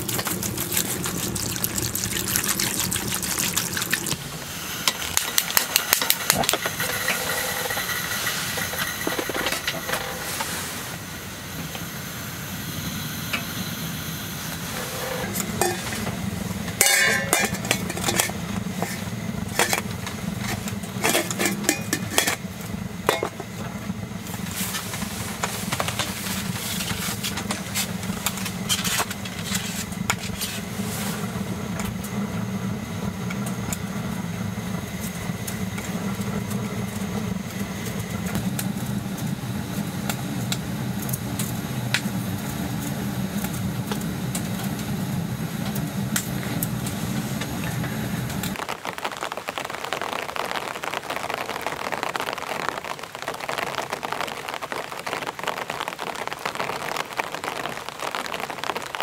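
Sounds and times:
gas stove burner roaring: 0.0 - 48.6
pot and lid clinking: 15.0 - 16.1, 16.8 - 22.4, 23.1 - 23.4.

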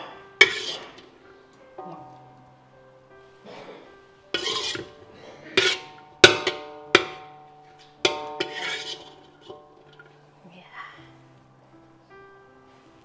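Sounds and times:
background music: 0.0 - 13.0
spatula scraping a pan: 0.4 - 1.1, 3.5 - 10.2.

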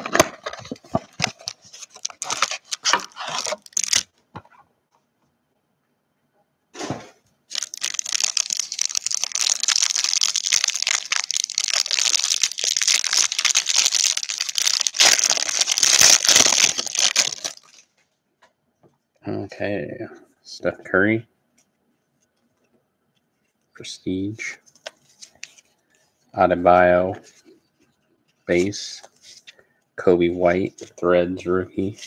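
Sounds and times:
plastic wrapper crinkling and tearing: 0.0 - 4.1, 7.5 - 17.9.

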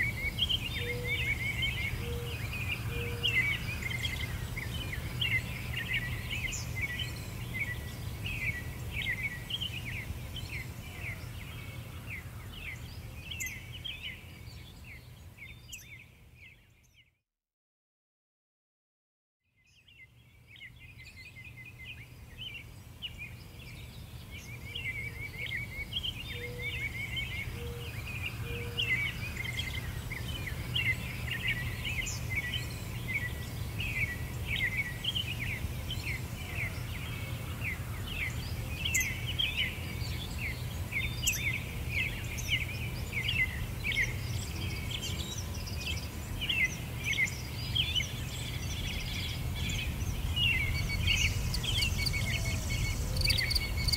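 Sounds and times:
small birds chirping: 0.0 - 17.2, 19.6 - 53.9.

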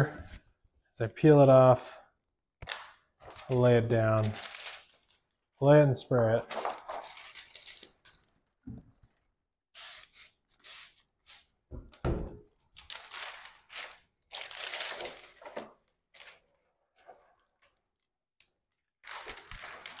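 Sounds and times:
plastic film crinkling: 2.6 - 5.4, 6.5 - 8.2, 12.7 - 18.1, 19.0 - 20.0
spray bottle squirting: 9.8 - 11.5.

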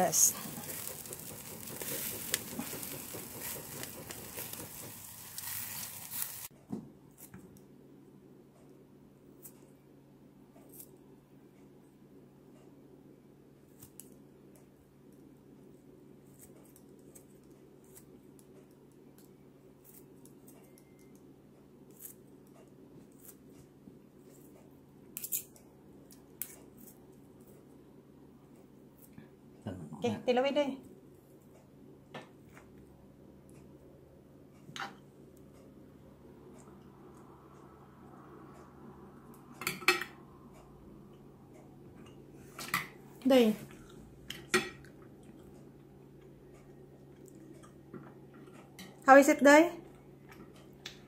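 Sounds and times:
meat sizzling on a grill: 0.0 - 6.5
low steady hum: 0.0 - 51.0.

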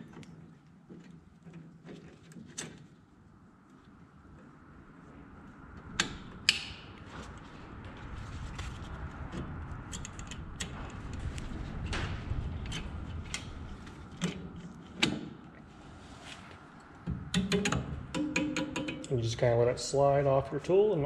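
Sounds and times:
metal scraping and creaking: 5.8 - 15.1.

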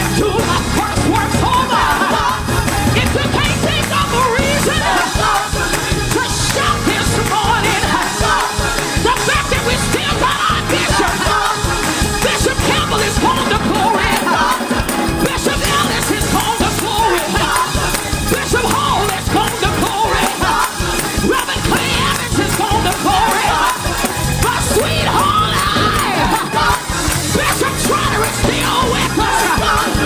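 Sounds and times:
band accompaniment: 0.0 - 30.0
choir singing: 0.0 - 30.0
woman singing into microphone: 24.4 - 30.0.

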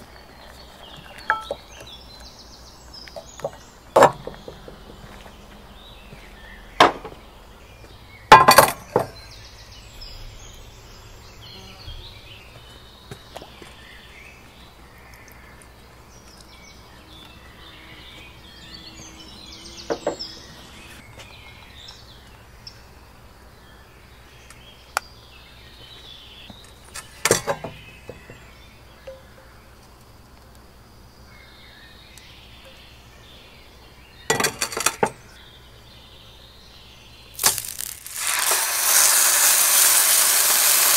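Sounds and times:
birds chirping: 0.0 - 40.9.

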